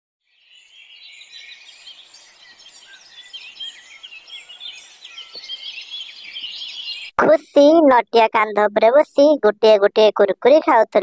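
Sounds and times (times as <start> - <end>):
small birds chirping: 0.3 - 7.2.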